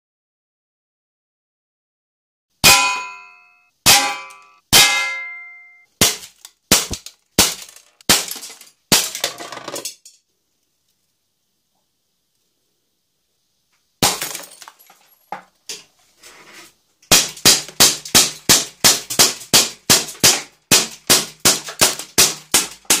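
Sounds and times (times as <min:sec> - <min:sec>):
pellets striking plywood board: 0:02.6 - 0:09.8, 0:14.0 - 0:14.6, 0:17.1 - 0:23.0
loud sharp crack with clatter: 0:06.0 - 0:10.1.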